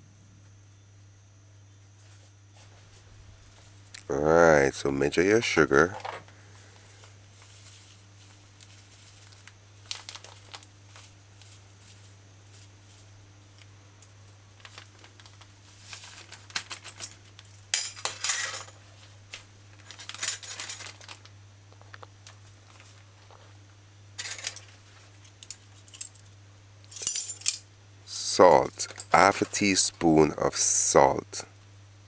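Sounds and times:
low steady hum: 0.0 - 32.0
plastic bag rustling: 6.6 - 13.1, 14.2 - 17.6, 18.8 - 23.6.

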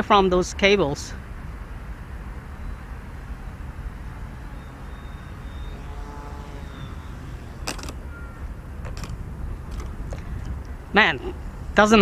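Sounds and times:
wind rumbling on microphone: 0.0 - 12.0
model plane motor whine: 1.5 - 10.9
sharp click: 7.6 - 8.0.

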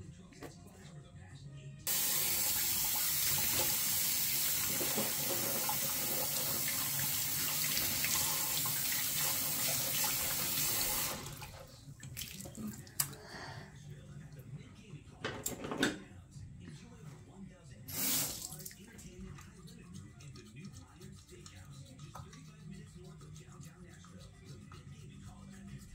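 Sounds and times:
tap running into sink: 1.9 - 11.4.

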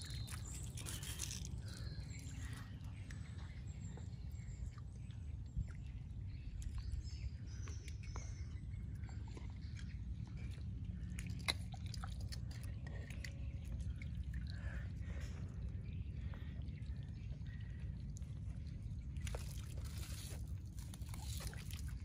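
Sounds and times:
small scattered clicks and crackles: 0.0 - 4.0, 17.4 - 22.0
steady low rumble: 0.0 - 22.0.

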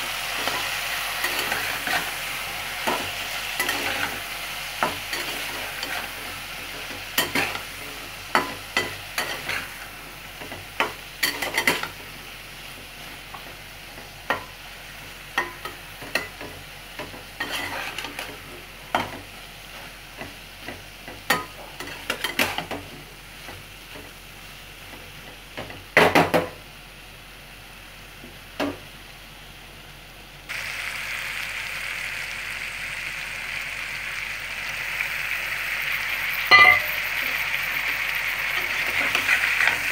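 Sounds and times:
food sizzling in a frying pan: 0.0 - 39.9
spatula scraping a pan: 0.2 - 12.2, 15.4 - 24.1.

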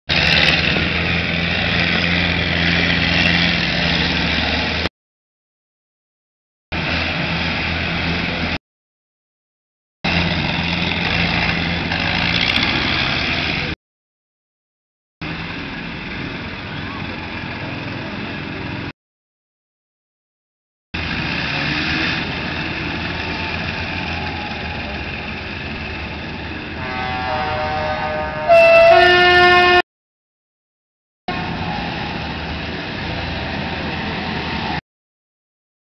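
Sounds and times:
combine harvester engines running: 0.1 - 4.9, 6.8 - 8.6, 10.1 - 13.8, 15.2 - 18.9, 21.0 - 28.4, 31.3 - 34.8
train horn chord: 26.8 - 29.8.

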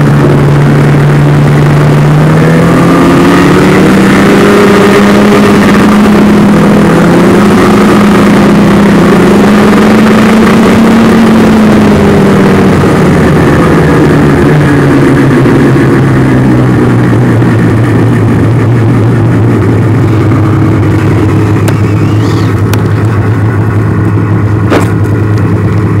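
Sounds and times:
snowmobile engine: 0.0 - 26.0.

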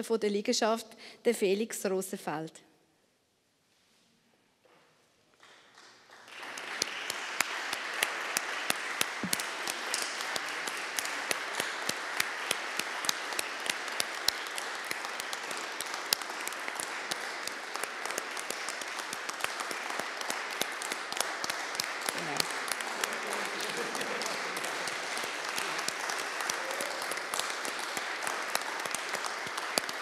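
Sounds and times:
congregation applauding: 5.4 - 30.0
sharp single claps: 6.6 - 30.0.

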